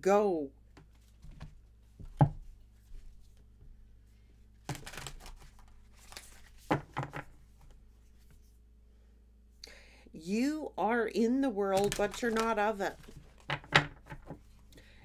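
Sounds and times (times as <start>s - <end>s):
cards rustling and slapping: 4.6s - 8.4s, 11.7s - 14.4s.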